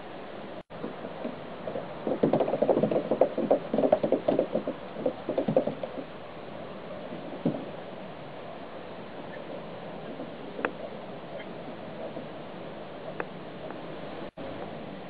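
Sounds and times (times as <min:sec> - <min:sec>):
cat paws scrabbling on plastic: 0:02.0 - 0:06.1.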